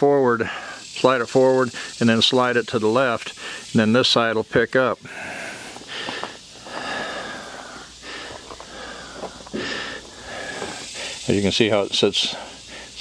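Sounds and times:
person breathing: 0.4 - 1.0, 1.7 - 2.0, 3.3 - 3.7, 5.0 - 11.3, 12.3 - 13.0.

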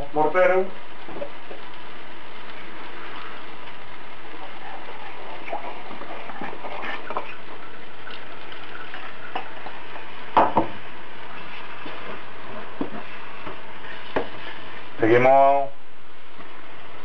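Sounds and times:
frying pan sizzling: 0.0 - 17.0
wooden spoon stirring stew: 2.6 - 14.8.

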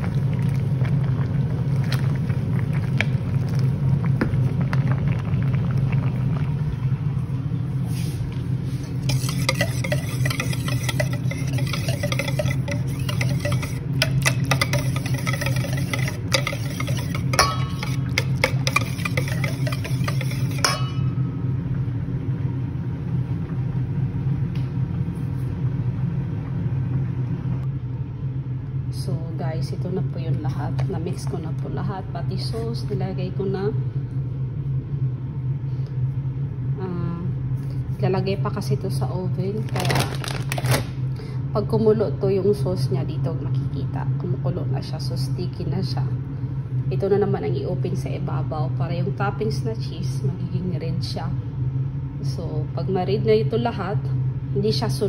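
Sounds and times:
steady low hum: 0.0 - 55.0
whisk scraping metal bowl: 8.8 - 21.1.

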